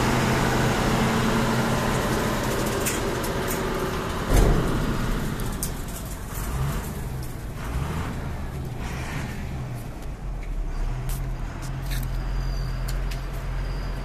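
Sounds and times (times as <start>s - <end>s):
truck engine running: 0.0s - 14.0s
heavy thump: 4.3s - 5.9s.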